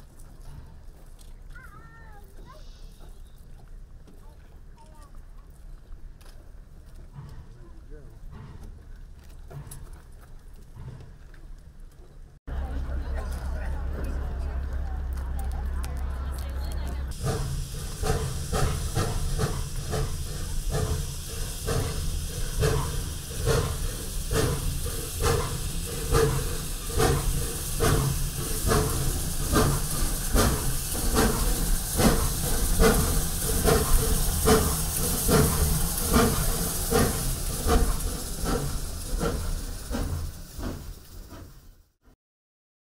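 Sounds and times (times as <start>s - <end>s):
steam locomotive chuffing: 6.2s - 11.8s, 12.5s - 42.0s
steam hissing: 17.0s - 42.0s.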